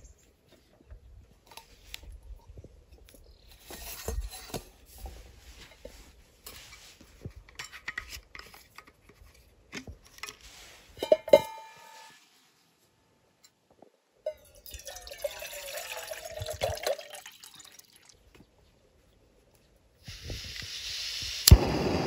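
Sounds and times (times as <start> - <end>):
metal cookware clinking: 11.0 - 12.2, 14.3 - 15.2.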